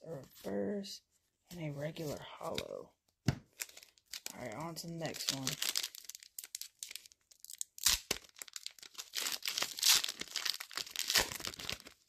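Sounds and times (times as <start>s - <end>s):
foil wrapper tearing and crinkling: 3.6s - 12.0s.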